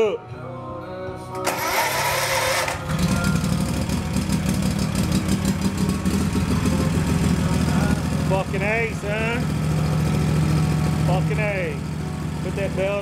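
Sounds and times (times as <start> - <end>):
electric starter cranking: 1.4 - 3.6
mower engine running: 1.4 - 13.0.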